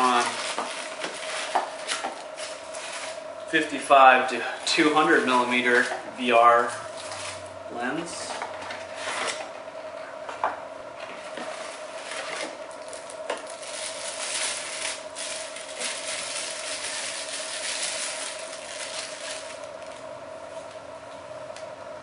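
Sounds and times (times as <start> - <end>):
plastic bag crinkling: 0.0 - 3.3, 4.5 - 7.5, 11.4 - 20.1.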